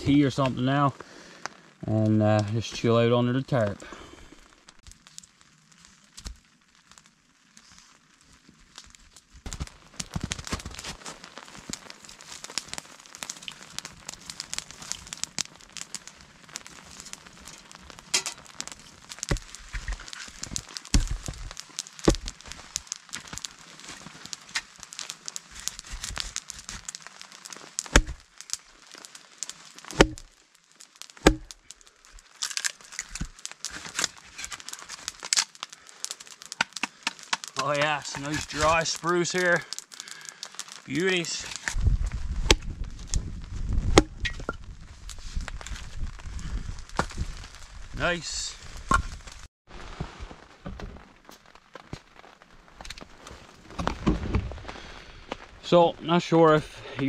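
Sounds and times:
campfire crackling: 0.0s - 57.0s
twigs being handled: 8.8s - 43.2s
axe splitting wood: 27.8s - 28.2s, 29.9s - 30.2s, 31.2s - 31.5s.

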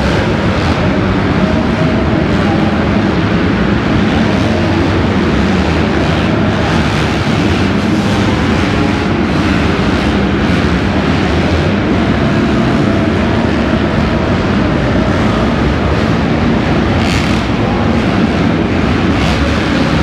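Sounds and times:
dirt bike engines racing: 0.0s - 20.0s.

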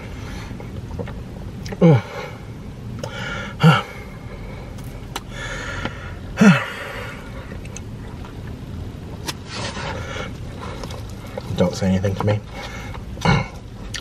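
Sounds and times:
man chewing food: 0.5s - 1.8s, 7.2s - 11.6s, 12.5s - 14.0s
man moaning: 1.7s - 2.4s, 3.5s - 4.0s, 6.3s - 7.1s.

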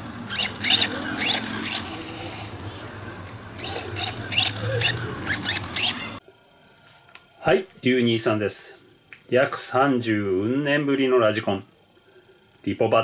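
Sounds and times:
steady low hum: 0.0s - 13.0s
high-pitched rc car motor bursts: 0.2s - 6.2s.

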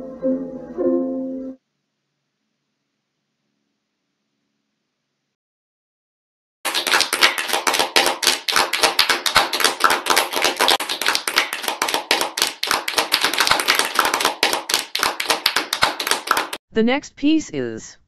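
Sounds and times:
crowd applauding: 6.7s - 16.6s.

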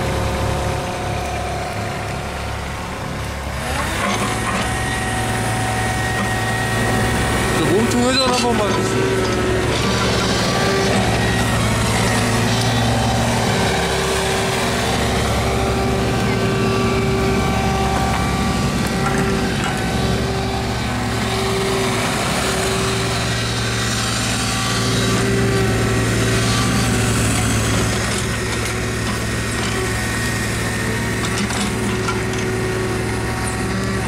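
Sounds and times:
diesel engine running: 0.0s - 34.0s
hydraulic whine: 0.0s - 34.0s.

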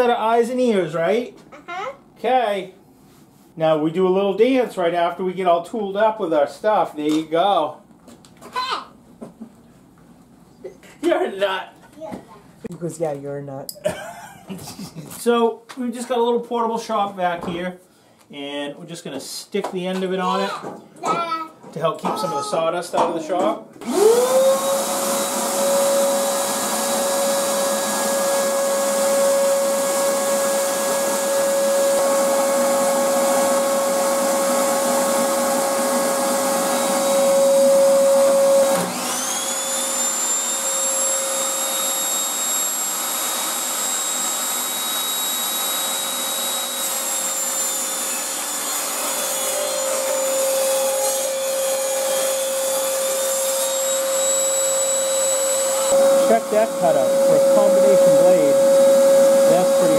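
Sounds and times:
shop vacuum running: 23.4s - 59.9s
table saw motor whine: 23.8s - 59.9s.

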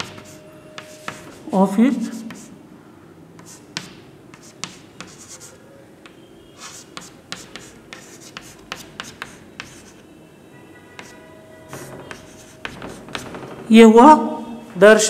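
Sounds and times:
chalk scratching on chalkboard: 0.0s - 2.6s, 3.4s - 10.0s, 11.0s - 13.4s
chalk tapping on chalkboard: 0.0s - 2.6s, 3.4s - 10.0s, 11.0s - 13.5s.

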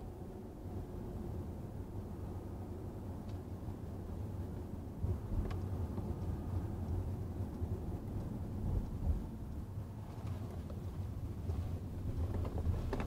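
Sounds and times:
road and engine rumble in car: 0.0s - 13.0s.

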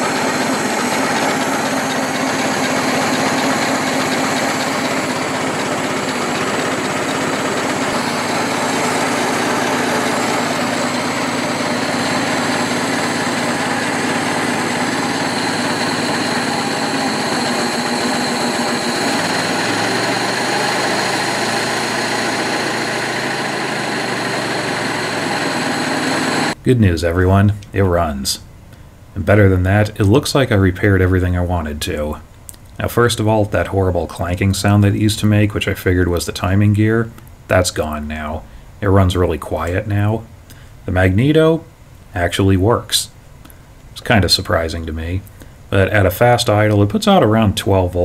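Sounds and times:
car engine idling: 0.0s - 26.6s.

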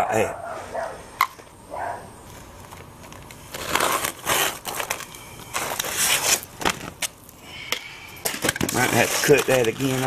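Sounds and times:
roof shingle scraping: 2.4s - 7.1s, 8.5s - 10.0s.

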